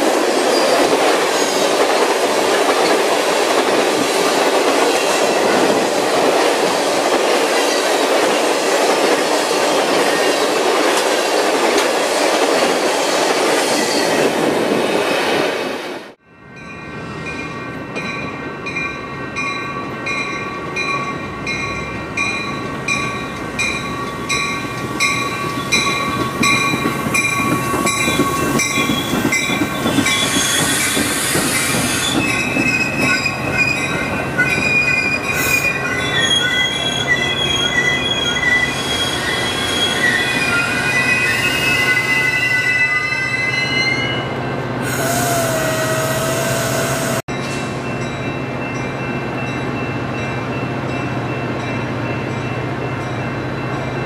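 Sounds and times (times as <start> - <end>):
train brakes and wheels squealing: 0.4 - 2.2, 23.8 - 47.8
train bell ringing: 16.3 - 31.0, 31.6 - 44.3, 47.3 - 54.0
air hiss: 44.8 - 47.2.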